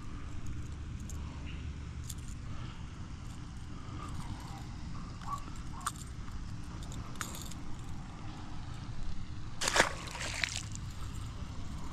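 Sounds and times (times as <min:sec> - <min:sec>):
low steady rumble: 0:00.0 - 0:11.9
fish splashing into water: 0:09.6 - 0:10.8.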